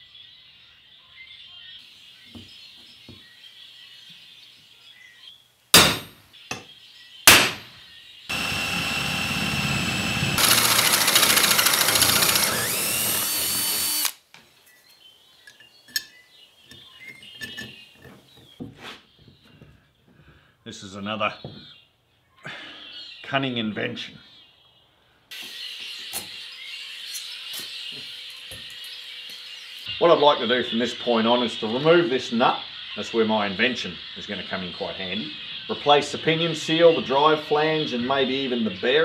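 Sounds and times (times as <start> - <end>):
sharp knocks: 5.8 - 6.7, 7.3 - 7.7
cordless drill boring through steel: 8.3 - 14.2.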